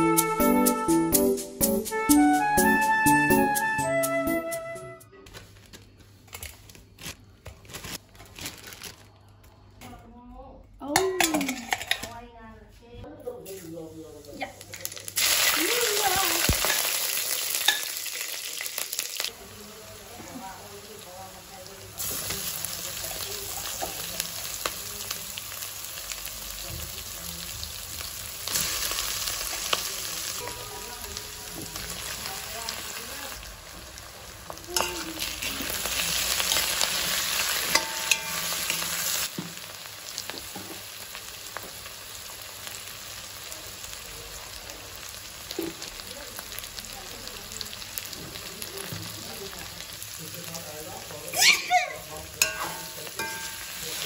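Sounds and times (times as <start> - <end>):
vegetables sizzling in oil: 13.4 - 54.0.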